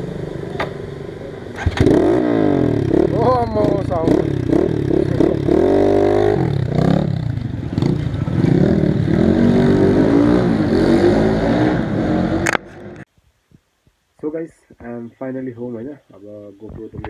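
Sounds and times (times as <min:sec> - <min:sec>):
dirt bike engine revving: 0:01.6 - 0:12.6.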